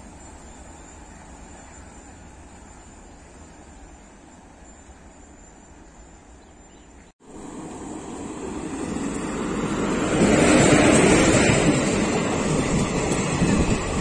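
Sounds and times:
train wheels rumbling on rails: 0:07.3 - 0:14.0.

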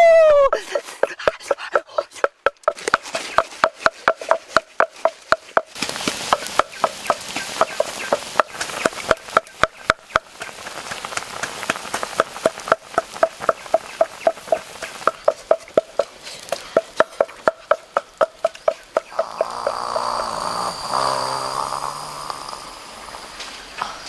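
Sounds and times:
oil sizzling in a pan: 0:05.8 - 0:23.7.

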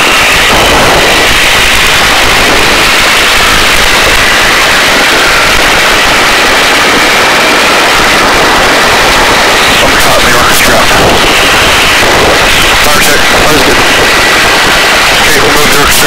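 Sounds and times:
faint high whine: 0:00.0 - 0:16.0
helicopter rotor and turbine noise: 0:00.0 - 0:16.0.

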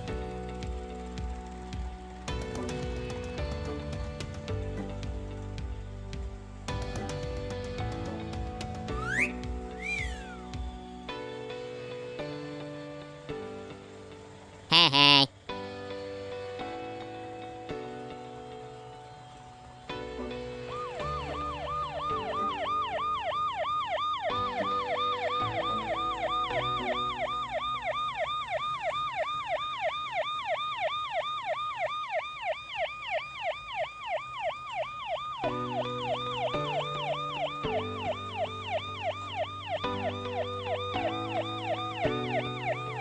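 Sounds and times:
background music chords: 0:00.0 - 0:14.7, 0:15.3 - 0:28.7, 0:35.4 - 0:43.0
emergency siren yelping: 0:20.7 - 0:43.0.

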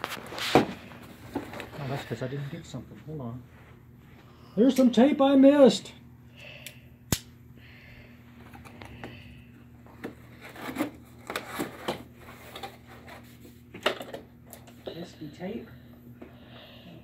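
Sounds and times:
tape and cardboard rustling: 0:00.0 - 0:02.0, 0:09.8 - 0:14.0.

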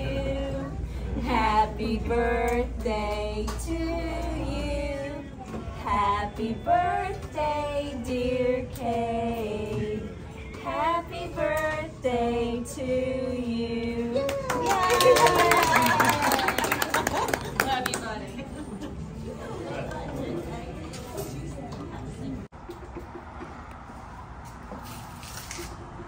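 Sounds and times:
women singing in unison: 0:00.0 - 0:14.4.

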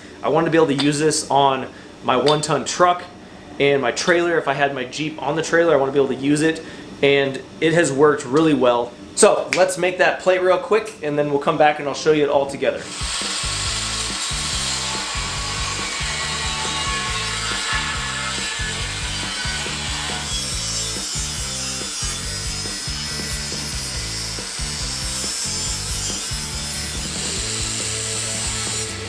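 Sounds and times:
angle grinder grinding: 0:12.8 - 0:29.0
power tools cutting steel: 0:12.8 - 0:29.0.

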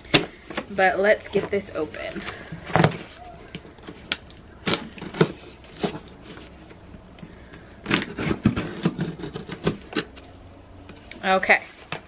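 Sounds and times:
knife cutting cardboard box tape: 0:04.0 - 0:06.8, 0:07.5 - 0:10.2.

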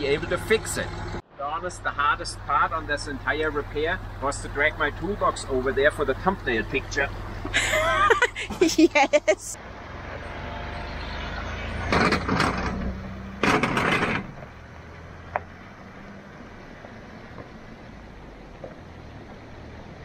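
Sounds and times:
diesel engine driving past: 0:00.0 - 0:08.6, 0:09.2 - 0:20.0
wheels rattling over cattle grid: 0:11.8 - 0:14.5.

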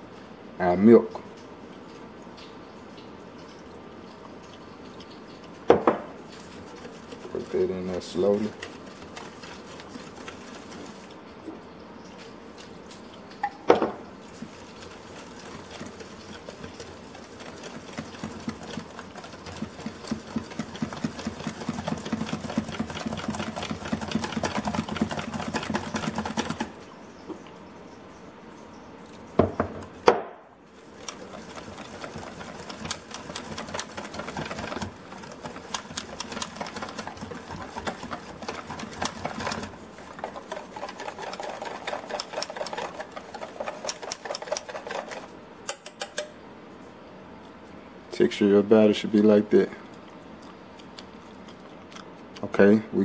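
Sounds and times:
whisk clicking against metal bowl: 0:06.4 - 0:11.0, 0:14.5 - 0:26.8, 0:30.8 - 0:46.3
whisk knocking on bowl: 0:14.4 - 0:26.7, 0:30.9 - 0:45.8.

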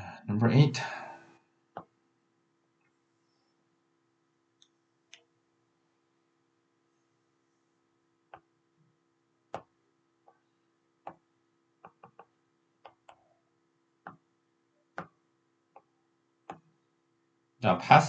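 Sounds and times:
faint steady hum: 0:00.0 - 0:18.0
stylus tapping on tablet screen: 0:09.5 - 0:09.8, 0:11.0 - 0:13.3, 0:14.0 - 0:14.3, 0:14.9 - 0:16.8.

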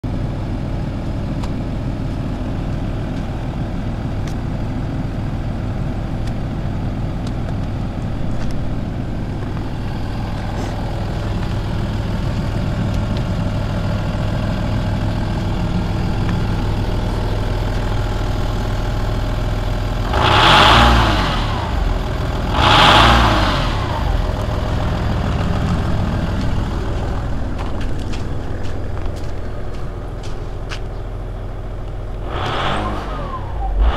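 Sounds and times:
diesel engine idling: 0:00.0 - 0:33.9
engine revving: 0:09.4 - 0:29.2, 0:32.0 - 0:33.9.

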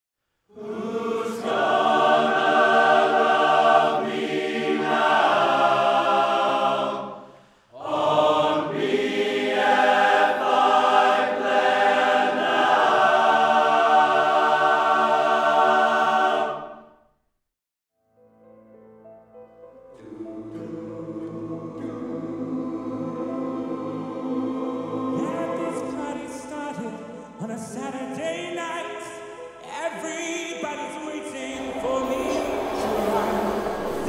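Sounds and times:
men's choir singing: 0:00.5 - 0:07.2, 0:07.8 - 0:16.8, 0:20.0 - 0:34.0.

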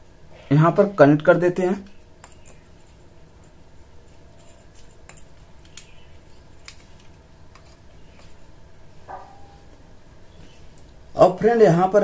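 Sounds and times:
small clicks and taps: 0:02.2 - 0:02.6, 0:04.7 - 0:06.0.

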